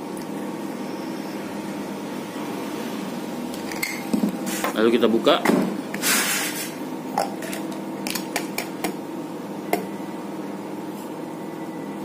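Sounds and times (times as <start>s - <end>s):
metal and ice clinking: 3.7s - 4.1s.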